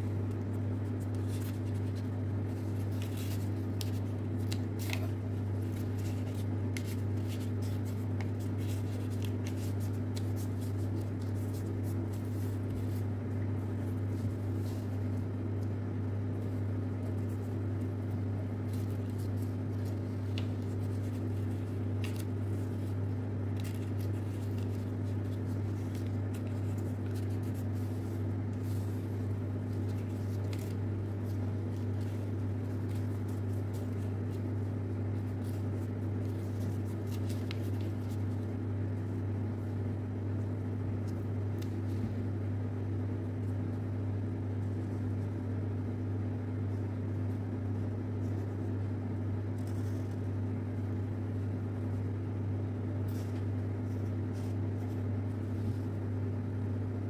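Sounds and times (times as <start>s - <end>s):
paper being folded: 0.0s - 57.0s.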